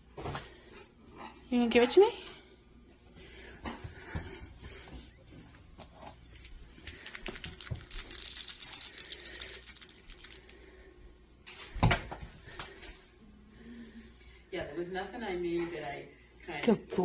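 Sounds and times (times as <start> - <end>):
toy mouse rattling: 7.0 - 10.6.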